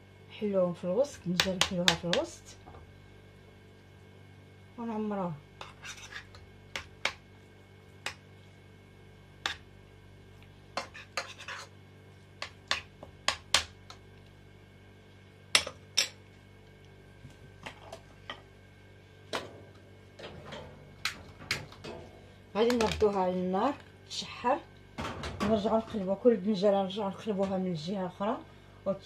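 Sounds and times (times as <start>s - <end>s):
metal spoon scraping a pan: 5.6s - 6.4s, 10.8s - 11.8s.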